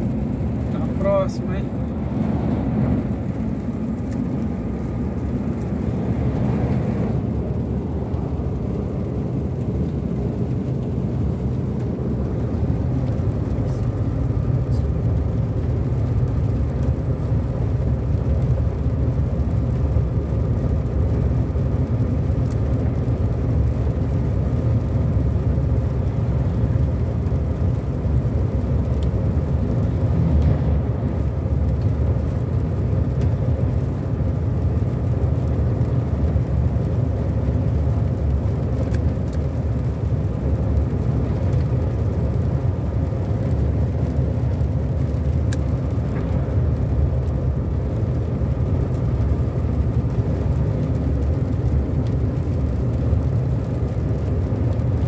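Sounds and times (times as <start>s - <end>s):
truck passing: 0.0s - 14.4s, 29.5s - 31.8s
car engine hum: 0.0s - 55.0s
tyres on wet road: 0.0s - 55.0s.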